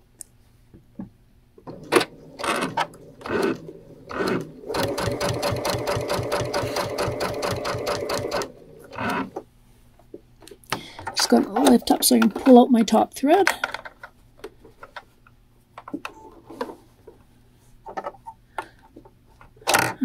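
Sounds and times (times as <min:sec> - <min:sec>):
sewing machine stitching: 0:01.6 - 0:09.4.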